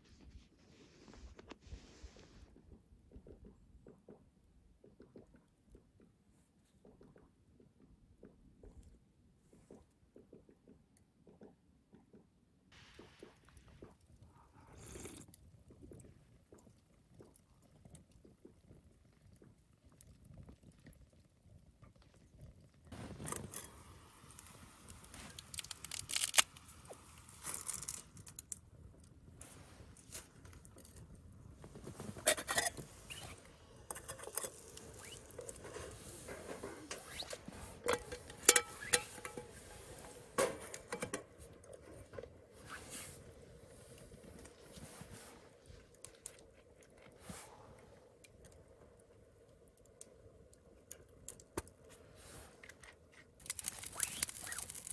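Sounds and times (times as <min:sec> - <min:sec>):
wood fire crackling: 0:12.9 - 0:54.9
metal pot knocks and clinks: 0:37.8 - 0:39.8.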